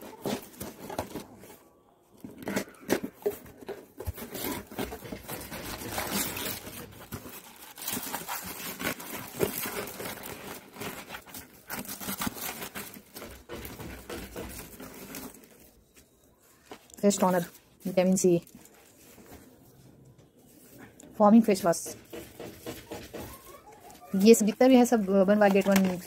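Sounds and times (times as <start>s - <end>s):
paper packing crinkling: 2.2s - 19.8s
cardboard box tearing: 4.0s - 15.6s.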